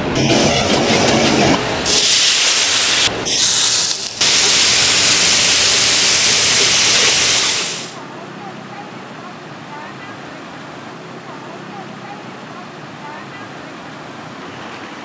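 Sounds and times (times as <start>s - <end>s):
fish frying in a wok: 2.0s - 8.0s.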